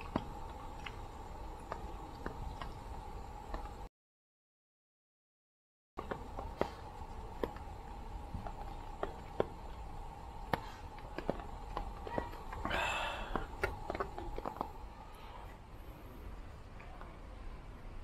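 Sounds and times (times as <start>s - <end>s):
faint hum: 0.0s - 3.9s, 6.0s - 18.0s.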